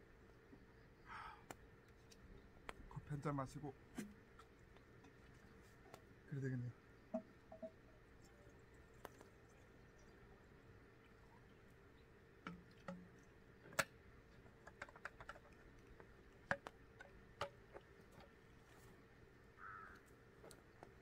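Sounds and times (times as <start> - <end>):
light clicks and taps: 8.9 - 10.1, 12.4 - 18.9.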